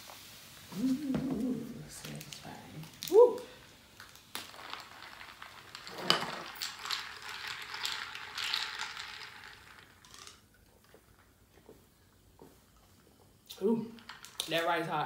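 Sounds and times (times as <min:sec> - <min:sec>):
ice rattling in glass: 0:04.0 - 0:10.5, 0:14.0 - 0:14.8.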